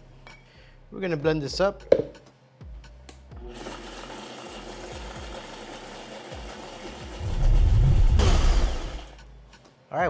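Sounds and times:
blender running: 3.4 - 9.1.

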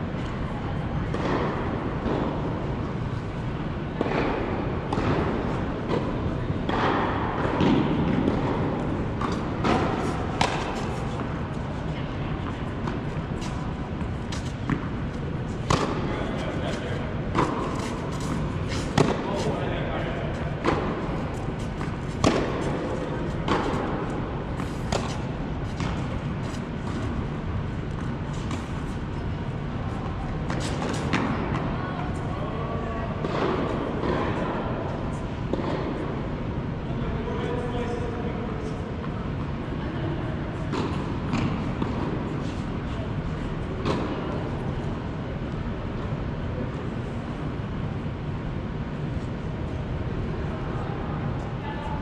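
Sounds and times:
steady background hum: 0.0 - 52.0
tennis ball knocking off rackets: 9.2 - 11.3, 15.6 - 16.1, 20.6 - 24.0.

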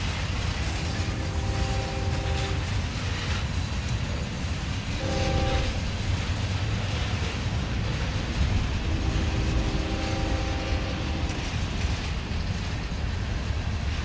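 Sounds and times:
train wheels rumbling on rail: 0.0 - 14.0
chord of steady tones: 0.5 - 2.7, 5.0 - 5.8, 8.9 - 11.4.

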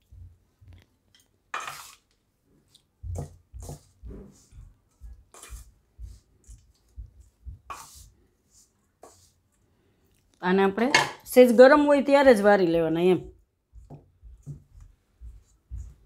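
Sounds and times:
spoon scraping a steel bowl: 1.5 - 2.2, 5.3 - 5.7, 7.7 - 9.4.

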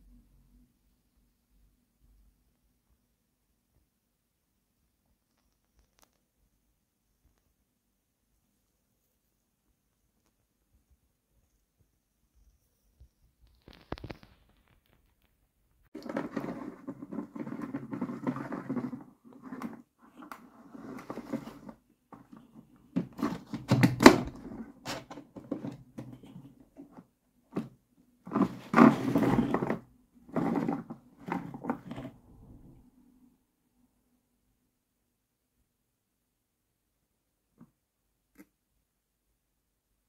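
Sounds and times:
plastic toys rubbing and knocking: 13.4 - 32.8.

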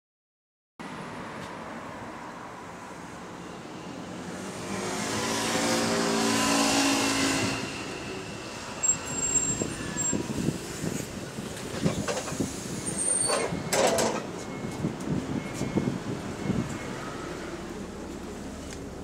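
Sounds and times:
bus engine: 0.8 - 19.0
brake squeal: 3.4 - 17.8.

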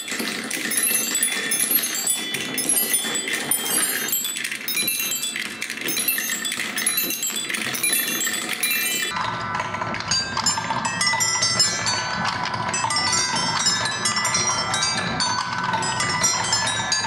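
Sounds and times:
marbles striking xylophone bars: 0.0 - 9.2
marbles rumbling along track: 0.0 - 16.9.

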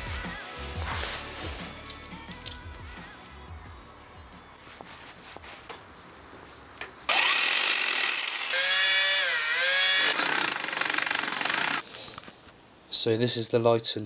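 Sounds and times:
power drill driving screws: 7.1 - 11.8.

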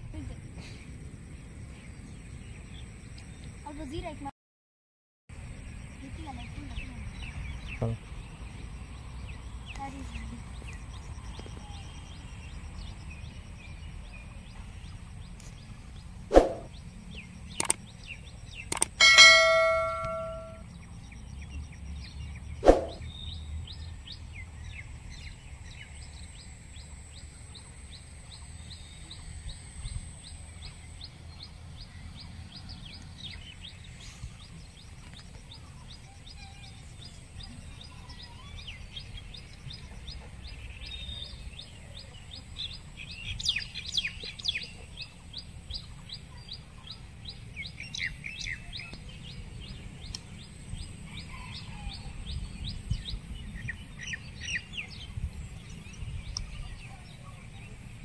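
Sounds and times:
birds chirping: 5.6 - 58.0
bird repeating high note: 19.0 - 20.6.

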